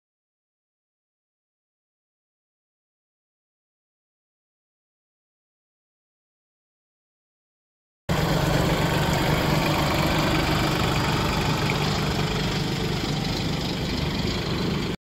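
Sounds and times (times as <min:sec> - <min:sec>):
tractor diesel engine idling: 0:08.1 - 0:15.0.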